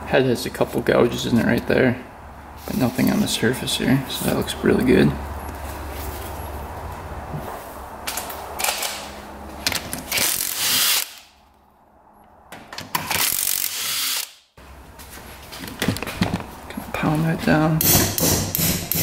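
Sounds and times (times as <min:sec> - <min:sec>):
power tool bursts: 0:13.1 - 0:14.4
tool handling: 0:15.5 - 0:16.6.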